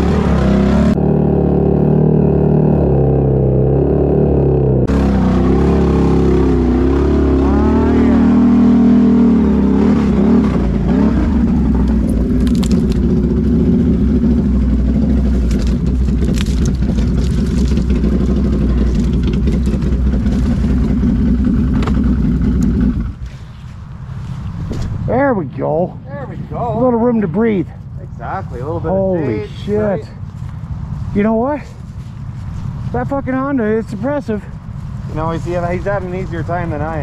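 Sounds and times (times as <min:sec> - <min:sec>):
atv engine revving: 0:00.0 - 0:23.4
branches snapping against vehicle: 0:11.8 - 0:13.4, 0:15.2 - 0:20.9, 0:21.7 - 0:23.5.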